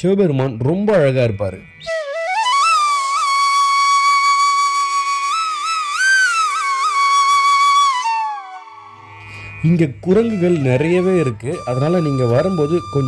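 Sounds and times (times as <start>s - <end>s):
faint steady drone: 0.0s - 4.1s, 6.7s - 13.0s
flute-like melody: 1.8s - 13.0s.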